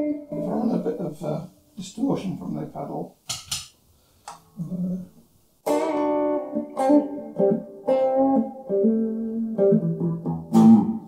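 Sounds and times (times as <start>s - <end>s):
distorted electric guitar: 0.0s - 1.0s, 5.6s - 11.0s.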